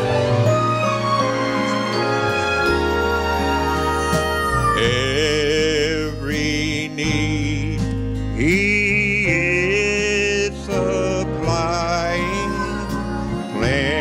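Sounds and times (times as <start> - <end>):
instrumental accompaniment chords: 0.0 - 14.0
man singing gospel with vibrato: 4.8 - 14.0.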